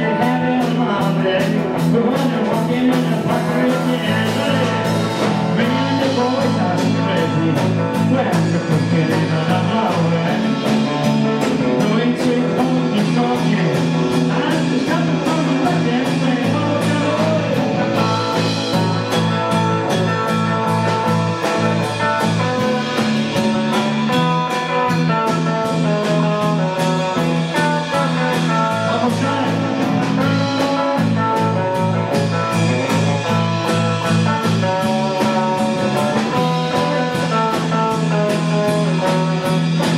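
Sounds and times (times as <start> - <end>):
country band playing live: 0.0 - 39.9
steady drum beat: 0.0 - 39.9.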